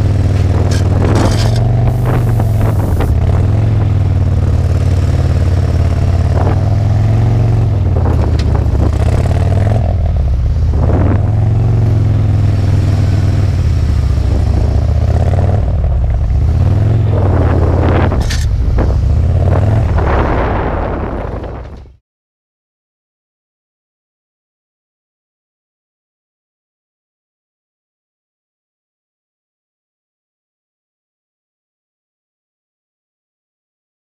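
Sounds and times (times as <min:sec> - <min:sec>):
motorcycle engine running at low speed: 0:00.0 - 0:22.0.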